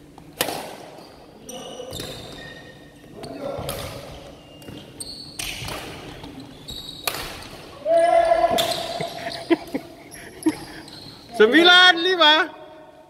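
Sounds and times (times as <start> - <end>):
racket striking shuttlecock: 0.2 - 0.9, 7.0 - 7.6
shoes squeaking on wooden floor: 4.2 - 11.6.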